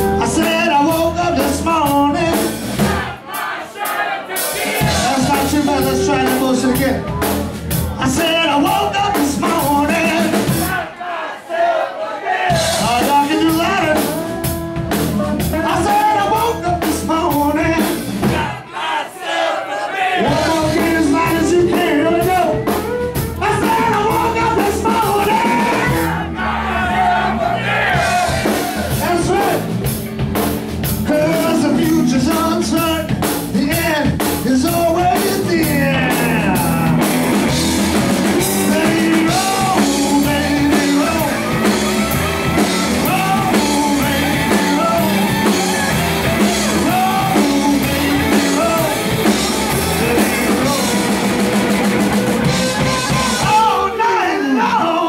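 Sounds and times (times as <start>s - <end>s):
person singing: 0.0s - 2.5s, 4.8s - 7.2s, 20.2s - 26.1s, 31.0s - 37.2s, 38.3s - 51.6s, 52.4s - 55.0s
blues-rock band playing: 0.0s - 10.9s, 12.5s - 18.6s, 20.2s - 55.0s.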